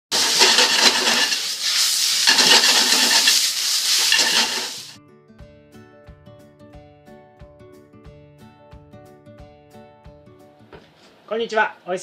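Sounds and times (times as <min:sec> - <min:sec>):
noodles sizzling in a frying pan: 0:00.1 - 0:05.0
spatula working a pan: 0:00.1 - 0:05.0
light instrumental music: 0:04.9 - 0:11.2.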